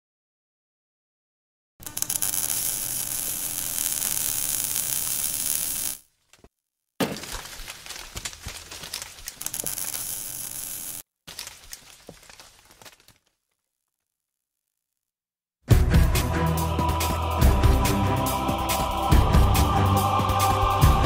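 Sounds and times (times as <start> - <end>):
crackling sizzling burn effect: 1.8 - 6.0, 9.3 - 11.0.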